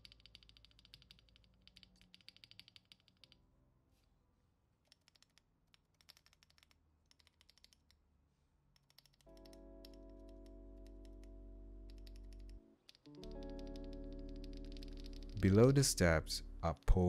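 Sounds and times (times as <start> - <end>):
keyboard keys clicking: 8.8 - 15.8.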